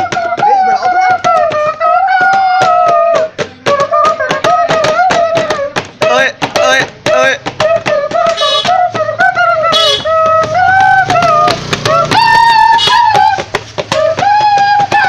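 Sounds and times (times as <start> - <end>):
beatbox clicks and beats: 0.0 - 15.0
hand whistled wavering tune: 7.7 - 15.0.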